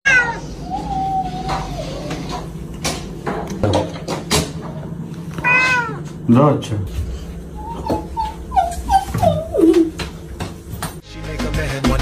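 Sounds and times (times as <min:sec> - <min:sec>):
cat meowing: 0:00.1 - 0:01.4, 0:05.4 - 0:06.0.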